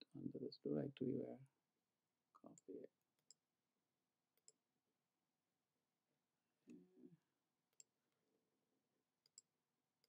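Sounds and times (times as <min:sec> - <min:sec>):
faint mouse and keyboard clicks: 0:09.2 - 0:09.5.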